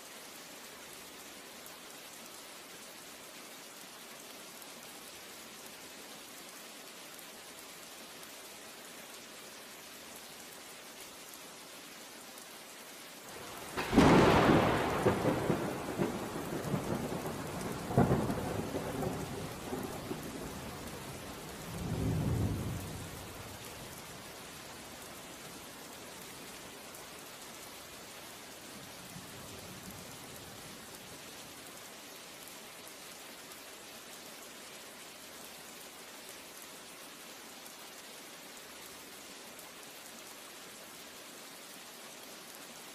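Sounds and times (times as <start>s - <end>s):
steady rain: 0.0s - 42.9s
thunder clap and rumble: 13.4s - 20.9s.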